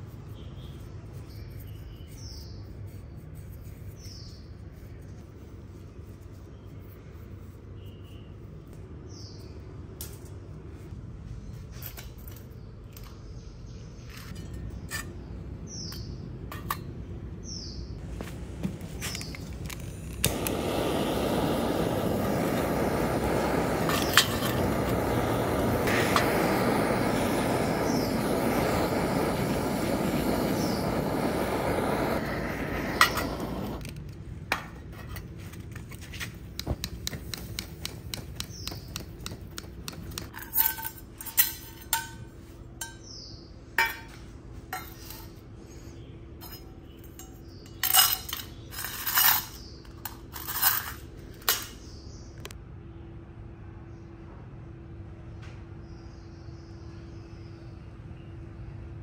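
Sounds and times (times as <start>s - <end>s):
gas torch flame burning: 18.0s - 34.7s, 35.6s - 42.1s.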